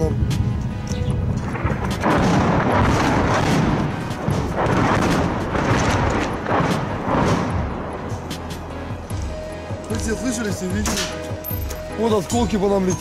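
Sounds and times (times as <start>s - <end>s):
loud bangs and rumbling: 0.1s - 8.7s
close explosion: 1.5s - 7.9s.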